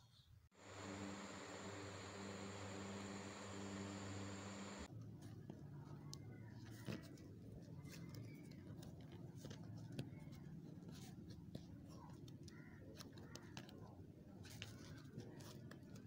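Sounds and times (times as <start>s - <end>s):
faint steady hum: 0.6s - 4.9s
soft ticks and scrapes: 5.0s - 16.0s.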